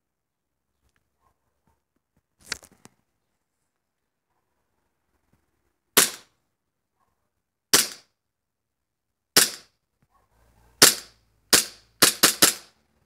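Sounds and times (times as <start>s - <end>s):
airsoft pistol shots: 6.0s - 6.3s, 7.7s - 8.1s, 9.4s - 9.7s, 10.8s - 12.7s.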